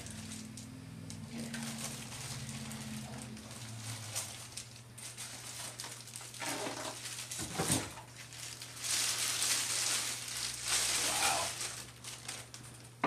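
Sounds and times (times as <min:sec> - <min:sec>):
steady low hum: 0:00.0 - 0:06.4
plastic bag crinkling: 0:00.0 - 0:13.0.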